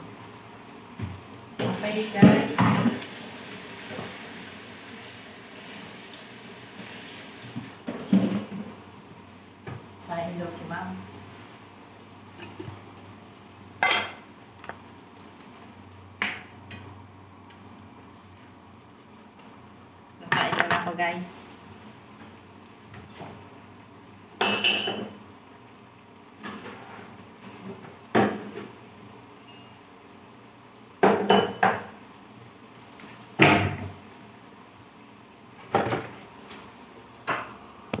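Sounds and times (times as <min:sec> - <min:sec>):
kitchenware clattering: 0:13.8 - 0:14.2, 0:20.3 - 0:20.9, 0:24.4 - 0:25.2, 0:31.0 - 0:31.9.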